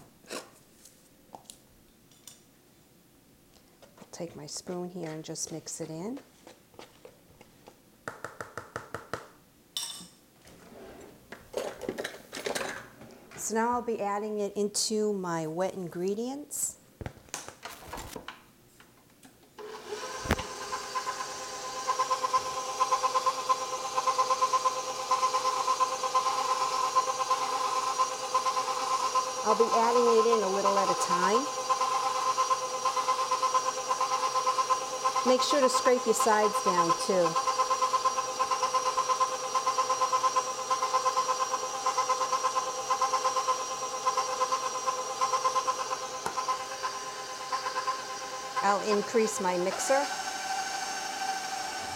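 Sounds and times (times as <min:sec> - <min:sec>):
stand mixer motor whine: 0:19.6 - 0:51.9.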